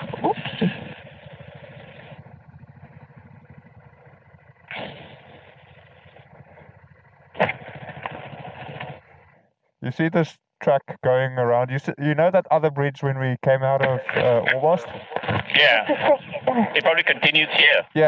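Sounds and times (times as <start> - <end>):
motorcycle engine running: 0.0 - 9.8.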